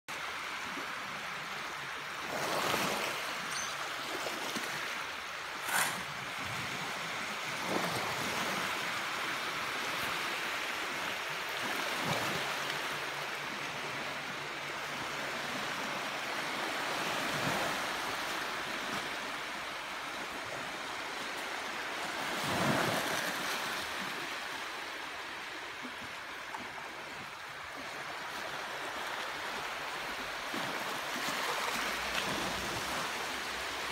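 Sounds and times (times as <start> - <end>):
waves washing on pebble shore: 4.0 - 9.2.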